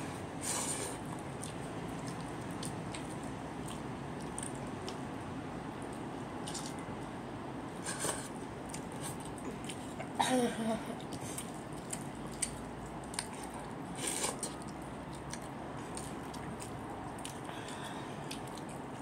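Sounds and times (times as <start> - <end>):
wet squishes of eating rice: 0.2 - 7.2, 11.0 - 19.0.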